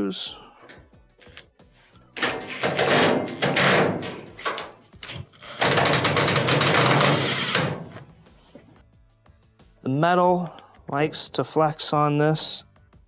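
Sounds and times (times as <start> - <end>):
cordless drill driving screws: 6.8 - 7.7.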